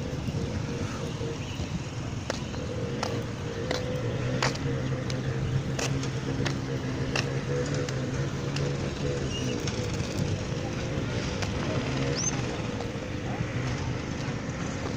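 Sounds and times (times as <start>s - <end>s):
engine humming: 0.0s - 14.9s.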